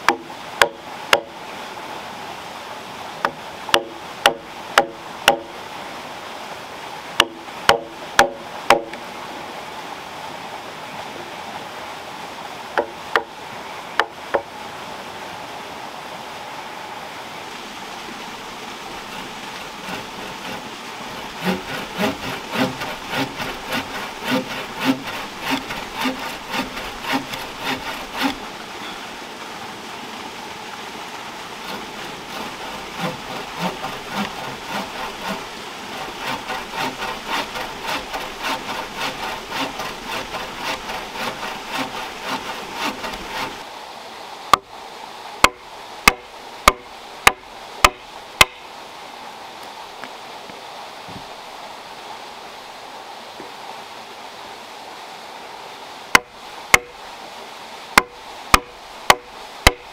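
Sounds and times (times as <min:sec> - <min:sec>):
hand saw cutting log: 0:00.0 - 0:01.4, 0:03.2 - 0:05.6, 0:07.2 - 0:09.0, 0:12.8 - 0:13.4, 0:18.8 - 0:28.6, 0:31.6 - 0:43.7, 0:45.4 - 0:48.6, 0:56.1 - 0:57.0, 0:58.0 - 0:59.9
mallet knocking chisel: 0:45.4 - 0:48.6.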